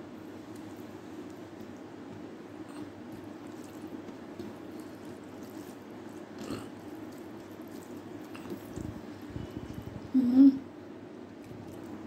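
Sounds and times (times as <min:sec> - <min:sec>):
fingers mixing rice: 0:00.0 - 0:10.0
low background hum: 0:00.0 - 0:12.0
chewing: 0:02.6 - 0:09.0, 0:11.4 - 0:12.0.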